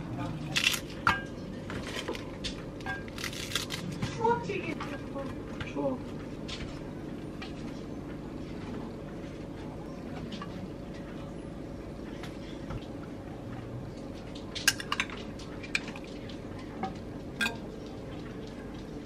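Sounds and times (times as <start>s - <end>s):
low room hum: 0.0s - 19.0s
metal spoon clinking ceramic dish: 17.4s - 17.6s.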